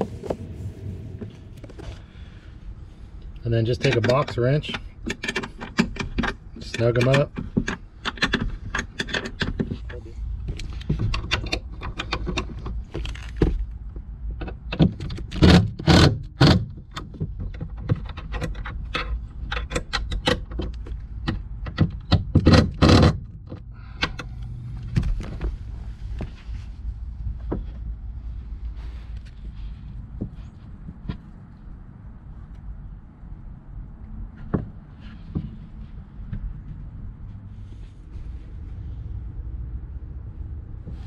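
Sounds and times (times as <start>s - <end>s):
wrench tightening bolts: 3.7s - 10.0s.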